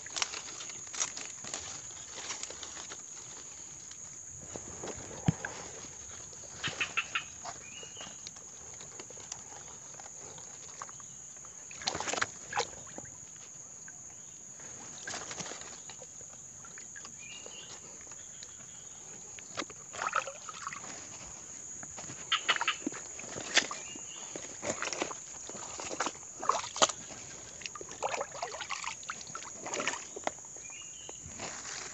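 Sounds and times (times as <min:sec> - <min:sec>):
leaves rustling: 0:00.0 - 0:10.8, 0:14.2 - 0:31.9
insect drone: 0:00.0 - 0:31.9
water splashing in a stream: 0:11.7 - 0:13.2, 0:19.6 - 0:21.2, 0:22.2 - 0:30.6.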